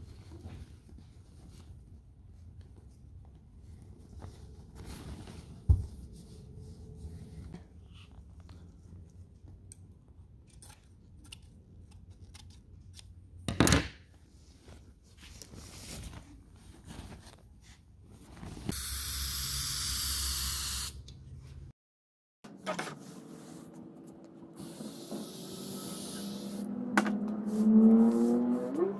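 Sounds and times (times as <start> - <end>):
aerosol spray can hissing: 24.6 - 26.6.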